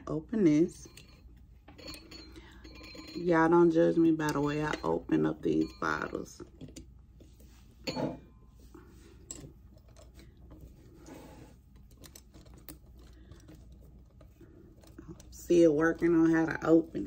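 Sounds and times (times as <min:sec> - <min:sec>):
corkscrew metal clicks and scraping: 0:11.6 - 0:15.4.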